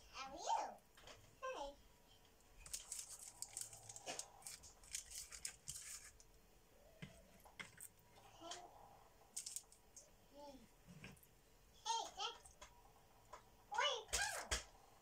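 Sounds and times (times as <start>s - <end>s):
parchment paper crinkling: 2.6s - 6.3s, 9.3s - 10.0s.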